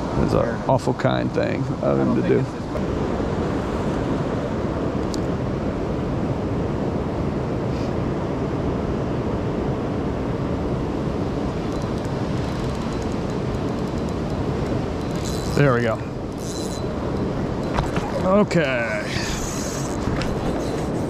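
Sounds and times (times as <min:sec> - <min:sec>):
faint ticks: 0:11.7 - 0:15.6.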